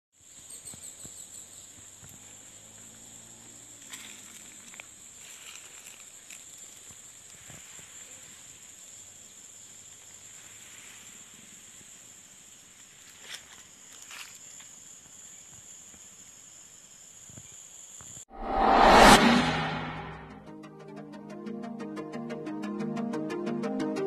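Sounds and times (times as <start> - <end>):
insects droning: 0.2 - 18.2.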